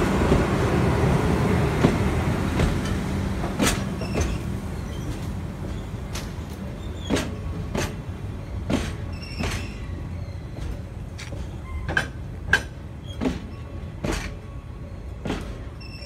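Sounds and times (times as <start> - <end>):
wheel squeal: 8.4 - 10.8, 15.8 - 16.0
wagon wheels knocking on rail joints: 8.6 - 9.8.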